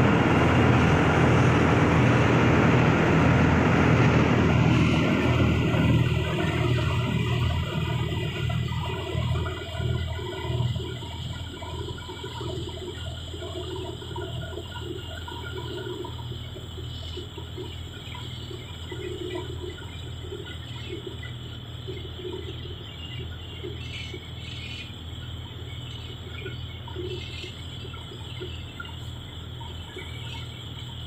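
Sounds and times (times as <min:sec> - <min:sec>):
steady low drone: 0:00.0 - 0:16.3.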